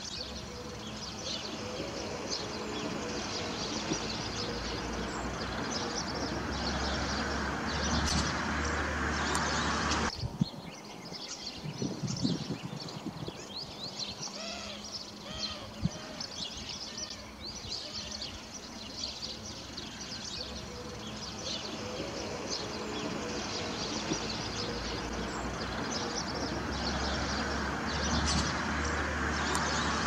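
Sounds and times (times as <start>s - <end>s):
songbirds chirping and twittering: 0.0s - 30.0s
rushing noise with low hum: 11.5s - 14.3s
rising-and-falling bird calls: 12.2s - 30.0s.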